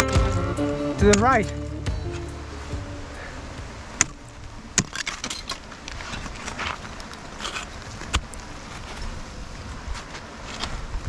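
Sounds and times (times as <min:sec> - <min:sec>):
ice crunching and scraping: 0:04.7 - 0:09.2.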